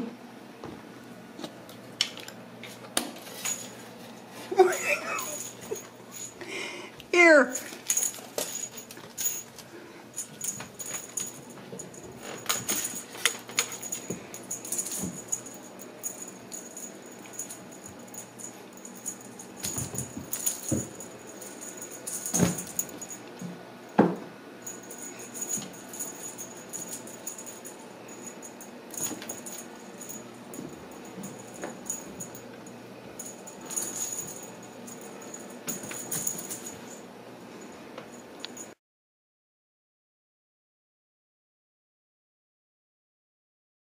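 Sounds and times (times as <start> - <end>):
kittens playing clicks and rattles: 1.4 - 6.6, 7.5 - 23.6, 24.6 - 37.1.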